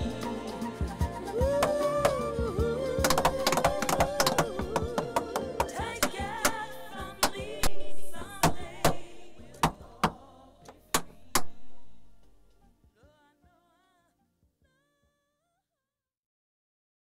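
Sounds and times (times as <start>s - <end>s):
music: 0.0s - 15.7s
tap-dance steps: 3.0s - 6.6s.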